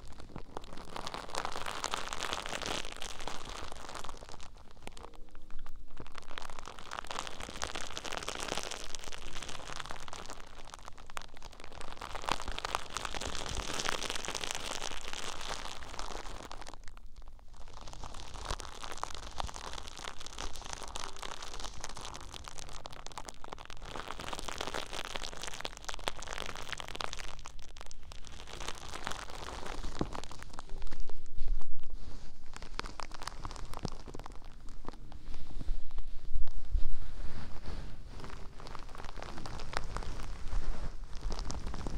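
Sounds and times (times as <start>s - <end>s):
fleece blanket rustling: 28.8s - 41.9s.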